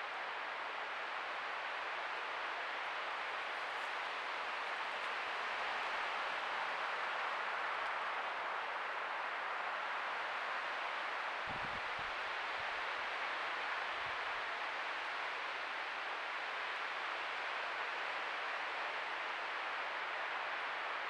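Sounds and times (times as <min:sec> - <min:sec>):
microphone hiss: 0:00.0 - 0:21.0.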